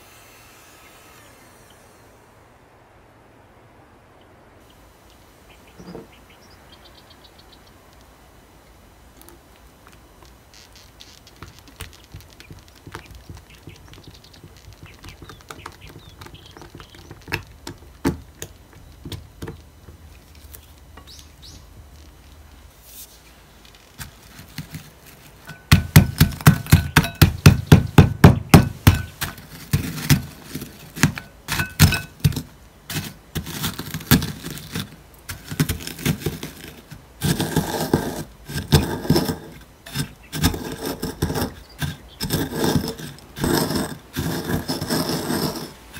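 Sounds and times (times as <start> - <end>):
biscuits crunching: 9.2 - 20.8
spatula scraping glass bowl: 31.5 - 45.9.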